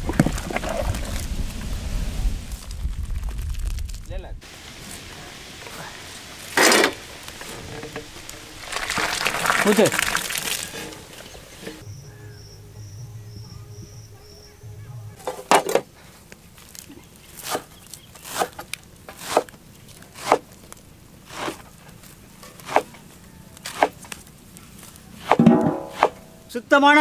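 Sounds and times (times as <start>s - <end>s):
faint high chirp: 11.8s - 15.2s
herb stems snapping: 16.3s - 20.8s, 21.4s - 26.2s.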